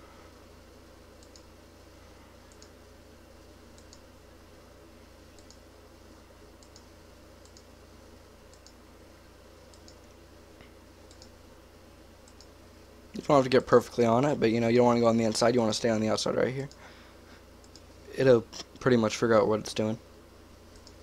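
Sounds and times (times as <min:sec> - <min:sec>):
low steady hum: 0:00.0 - 0:21.0
computer mouse clicks: 0:01.2 - 0:01.5, 0:02.5 - 0:02.8, 0:03.7 - 0:04.1, 0:05.3 - 0:05.6, 0:06.6 - 0:07.7, 0:08.5 - 0:08.8, 0:09.7 - 0:11.4, 0:12.2 - 0:12.6, 0:17.6 - 0:17.9, 0:20.7 - 0:21.0.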